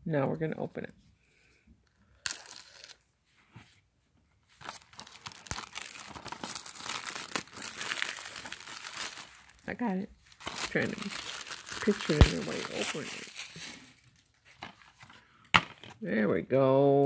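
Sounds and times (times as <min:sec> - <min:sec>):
plastic shrink wrap crinkling: 0:04.6 - 0:15.2.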